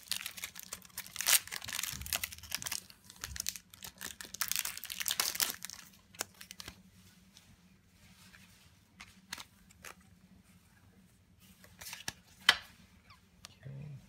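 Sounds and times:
foil wrapper tearing and crinkling: 0:00.0 - 0:06.8.

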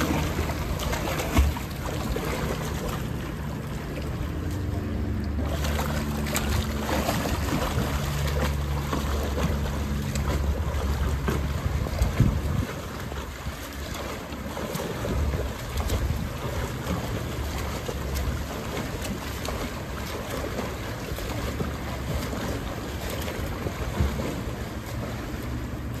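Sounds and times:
swimmer splashing: 0:00.0 - 0:26.0
wind rumbling on microphone: 0:10.2 - 0:13.7, 0:15.0 - 0:17.0.

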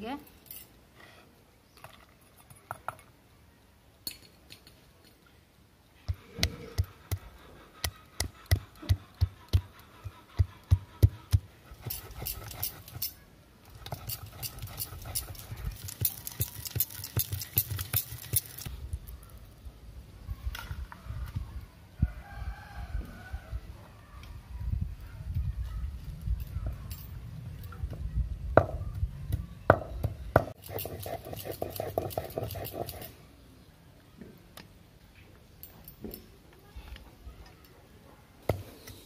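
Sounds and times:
gritty stone scraping: 0:13.7 - 0:18.8, 0:30.5 - 0:33.2
nuts clicking onto stone: 0:13.8 - 0:18.7
stone roller pounding: 0:29.7 - 0:33.1.

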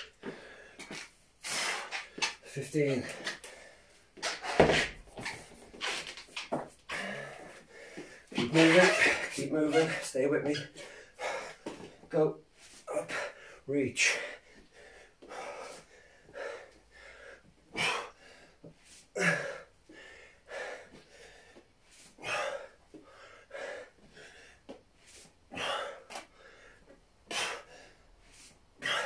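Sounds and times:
man breathing hard: 0:00.0 - 0:02.2, 0:02.9 - 0:04.1, 0:06.9 - 0:08.4, 0:10.7 - 0:29.0.

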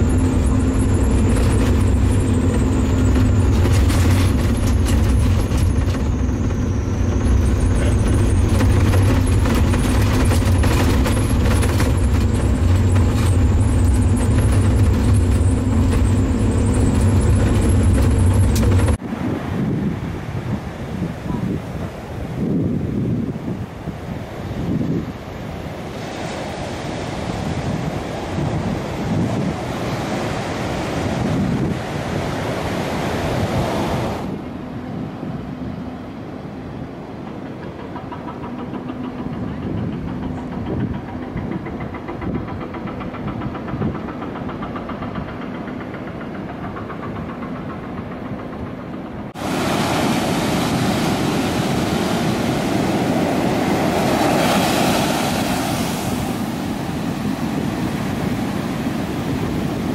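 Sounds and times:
wind on microphone: 0:00.0 - 0:34.6, 0:39.3 - 0:44.2, 0:49.3 - 0:59.9
surf breaking on beach: 0:49.4 - 0:59.9.

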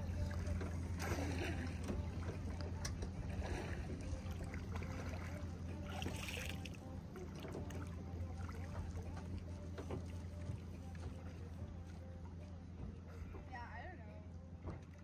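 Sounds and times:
paddle swishing through water: 0:00.0 - 0:12.0
steady low rumble: 0:00.0 - 0:15.0.

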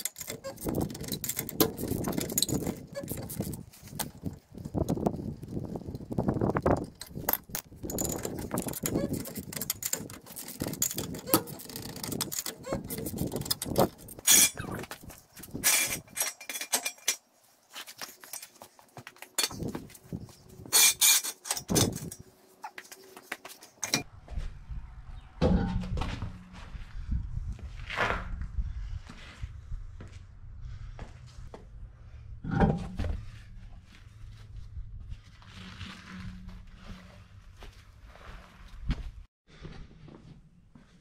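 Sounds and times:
wrench loosening lug nuts: 0:00.0 - 0:05.3, 0:06.6 - 0:14.8
jack stands clanking on concrete: 0:25.4 - 0:26.2, 0:32.4 - 0:33.2.

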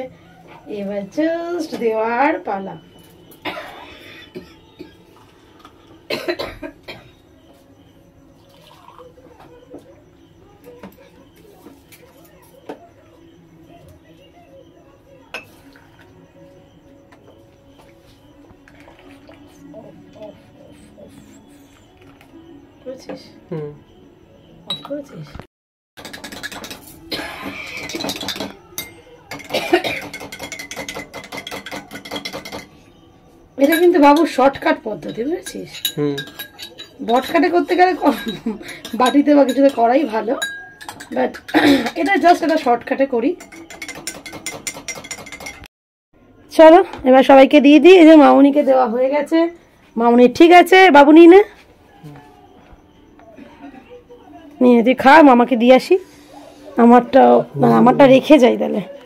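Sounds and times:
loud cough: 0:03.4 - 0:05.0, 0:06.1 - 0:07.2, 0:27.1 - 0:27.9, 0:29.5 - 0:30.1, 0:41.5 - 0:42.0
milk pouring into glass cups: 0:08.4 - 0:09.3, 0:17.8 - 0:20.1
spoon clinking in glass mug: 0:15.3 - 0:16.1, 0:24.7 - 0:25.0, 0:26.0 - 0:32.8, 0:33.6 - 0:45.6.

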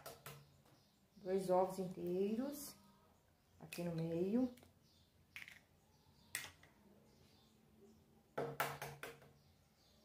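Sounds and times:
eggs being cracked: 0:05.3 - 0:06.7.

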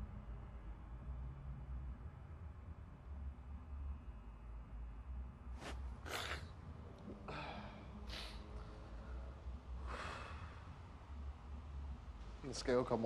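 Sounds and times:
steady low hum: 0:00.0 - 0:13.0
man breathing heavily: 0:05.6 - 0:10.8.

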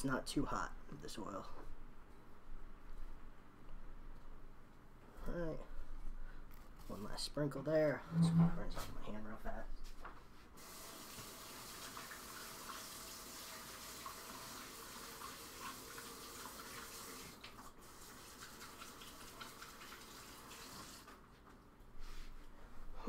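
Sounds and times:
faucet running: 0:10.6 - 0:21.1.

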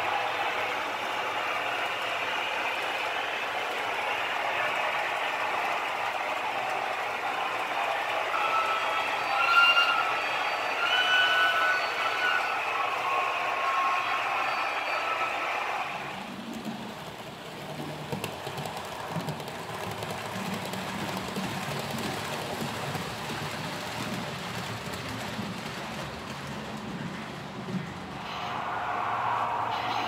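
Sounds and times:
model train wheels rumbling: 0:16.1 - 0:28.8.

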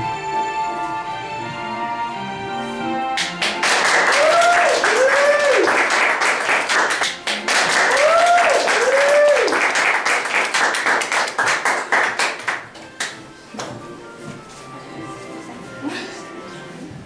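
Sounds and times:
audience clapping: 0:03.2 - 0:13.7
whooping cheers: 0:03.9 - 0:05.9, 0:07.7 - 0:09.8.

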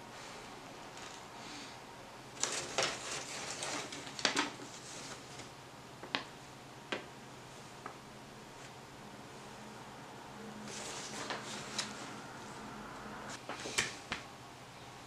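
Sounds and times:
paper and cardboard rustling: 0:02.4 - 0:05.5, 0:10.7 - 0:12.1
sharp paper crackles: 0:02.4 - 0:05.5.

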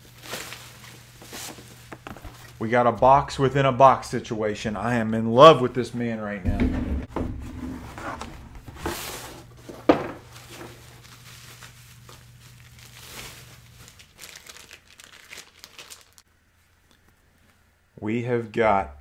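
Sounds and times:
packing material crinkling: 0:00.0 - 0:02.6, 0:08.9 - 0:16.2.

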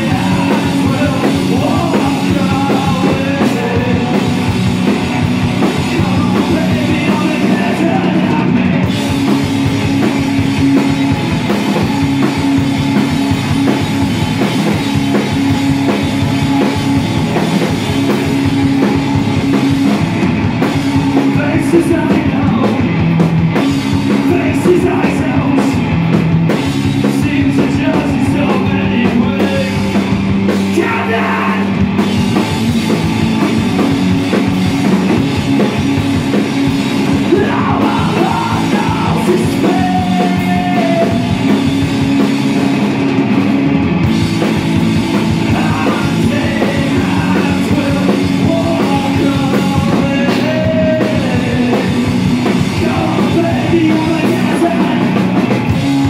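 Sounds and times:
man singing: 0:00.0 - 0:09.5, 0:21.1 - 0:22.9, 0:24.0 - 0:25.9, 0:26.9 - 0:31.8, 0:37.0 - 0:41.6, 0:45.2 - 0:55.5
drum kit: 0:00.0 - 0:56.0
electric guitar: 0:00.0 - 0:56.0.

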